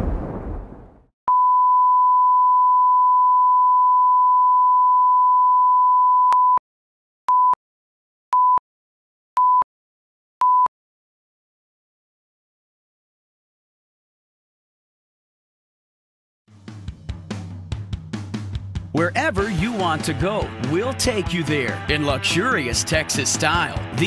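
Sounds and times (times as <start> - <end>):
short beeps: 1.3 - 6.6.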